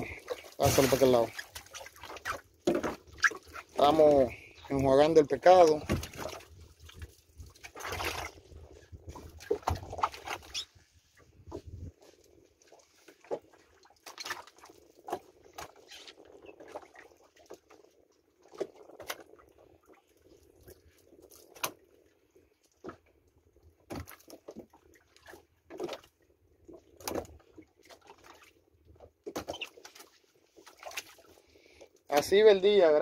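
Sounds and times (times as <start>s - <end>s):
water splashing: 0.0s - 10.7s
knocks and scrapes in boat: 0.0s - 20.0s, 23.8s - 31.4s.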